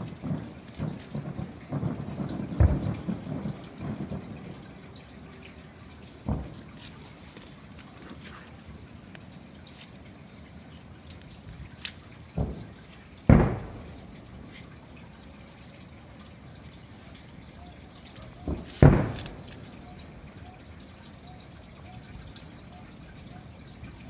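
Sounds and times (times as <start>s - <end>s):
distant fireworks booms: 0.0s - 7.7s, 11.6s - 15.0s, 18.2s - 20.4s.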